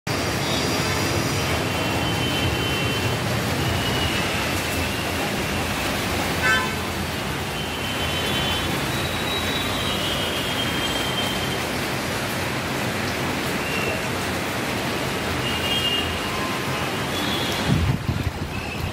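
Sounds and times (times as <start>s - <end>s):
road traffic: 0.0s - 18.9s
high horn tones: 6.4s - 7.0s.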